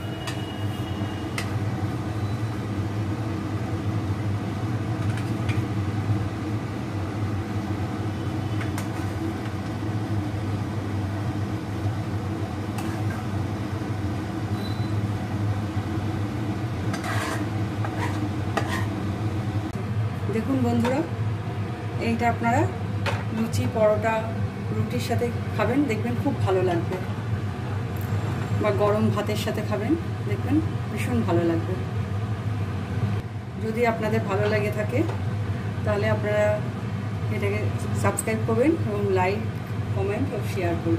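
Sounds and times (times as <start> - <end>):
metal spatula scraping frying pan: 12.8 - 13.2, 16.9 - 19.0.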